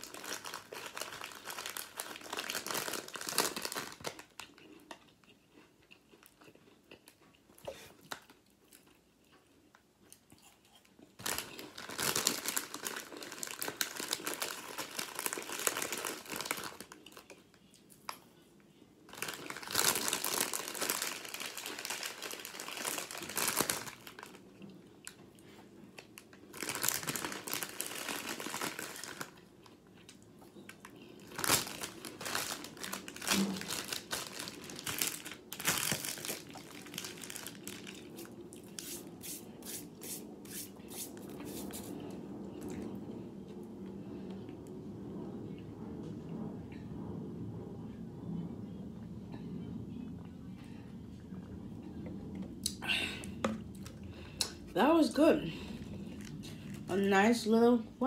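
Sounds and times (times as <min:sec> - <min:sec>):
packaging crinkling: 0:00.0 - 0:04.6, 0:11.2 - 0:17.4, 0:19.1 - 0:24.5, 0:26.1 - 0:29.4, 0:31.2 - 0:39.0.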